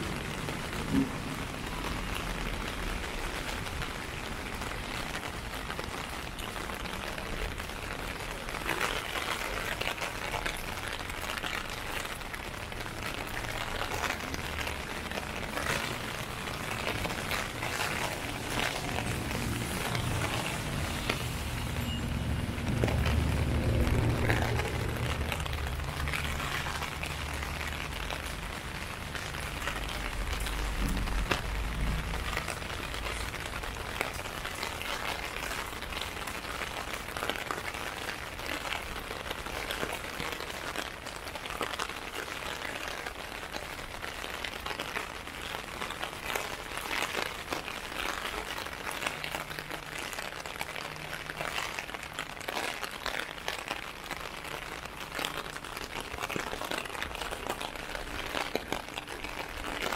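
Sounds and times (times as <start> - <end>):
rain on plastic umbrella: 0.0 - 59.9
low rumble: 18.7 - 28.4.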